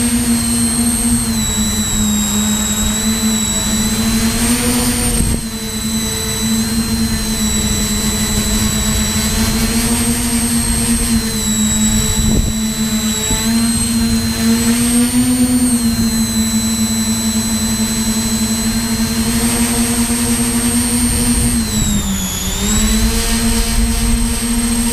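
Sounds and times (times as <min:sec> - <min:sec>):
drone motors whining: 0:00.0 - 0:24.9.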